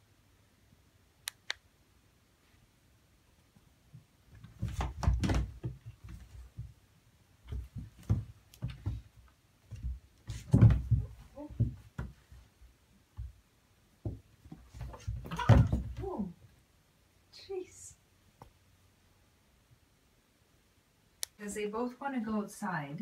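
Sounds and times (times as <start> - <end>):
sharp clicks: 1.2 - 1.7
cats scuffling in a bathtub: 4.3 - 6.8, 7.4 - 13.4, 14.0 - 16.2.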